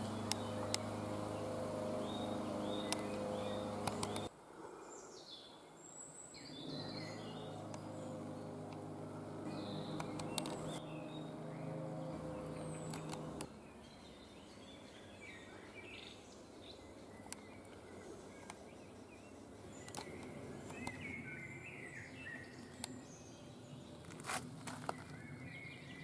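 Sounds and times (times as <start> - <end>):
songbirds chirping: 0.0 - 26.0
sharp clicks: 2.8 - 3.2, 3.8 - 4.3, 10.0 - 10.8, 12.8 - 13.5, 19.8 - 21.0.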